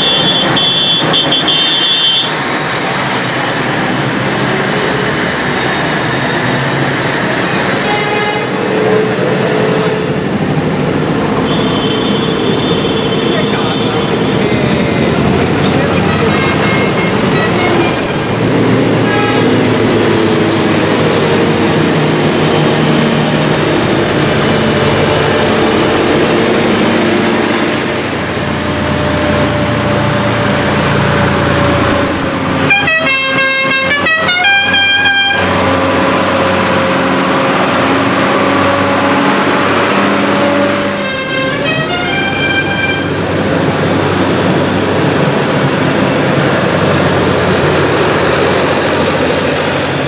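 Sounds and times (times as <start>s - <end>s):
diesel tractor engines passing: 0.0s - 50.0s
musical horn playing a tune: 7.8s - 8.8s, 15.9s - 18.0s, 19.0s - 19.6s, 31.9s - 35.6s, 40.3s - 43.2s.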